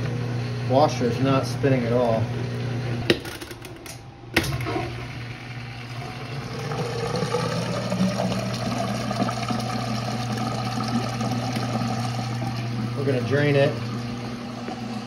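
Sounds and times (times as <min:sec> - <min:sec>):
washer motor humming: 0:00.0 - 0:15.0
water rushing through drain pump: 0:04.4 - 0:15.0.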